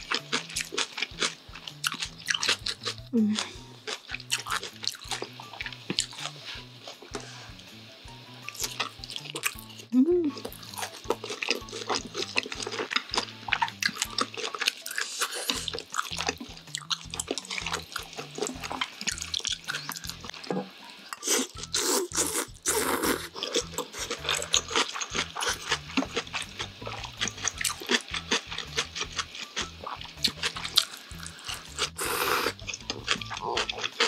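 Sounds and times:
noodle slurping: 29.8 - 34.0.

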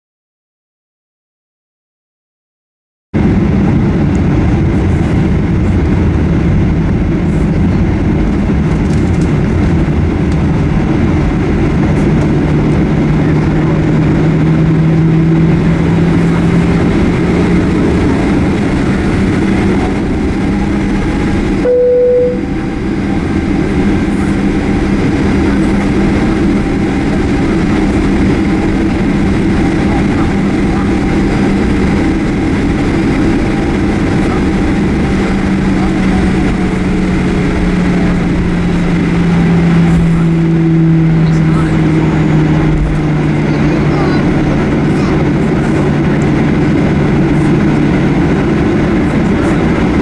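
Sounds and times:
aircraft cabin engine rumble: 3.2 - 50.0
short single tone: 21.6 - 22.7.

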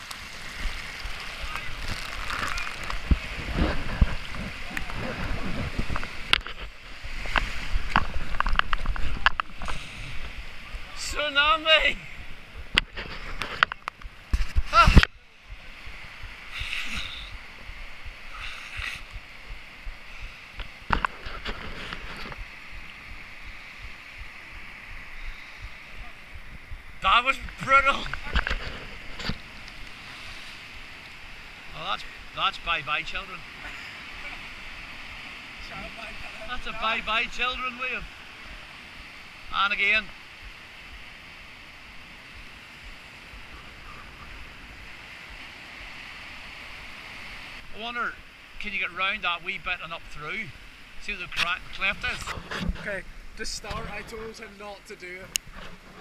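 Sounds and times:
wave slap: 0.0 - 11.0
wind buffeting microphone: 0.0 - 11.1, 12.0 - 32.2
surf breaking over rocks: 0.0 - 56.0.

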